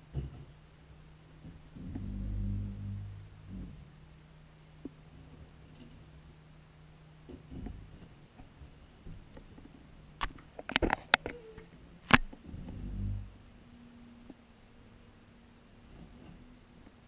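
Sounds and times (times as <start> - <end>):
muffled knocks and bangs of bins: 0.0 - 0.6, 7.3 - 9.8
garbage truck low rumble: 0.0 - 17.0.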